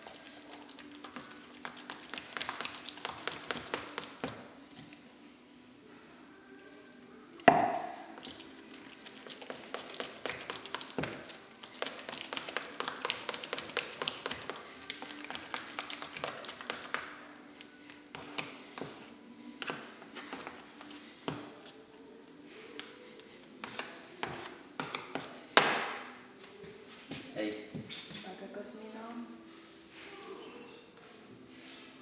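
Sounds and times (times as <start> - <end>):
tapping and clicking of hand work: 7.5 - 8.4.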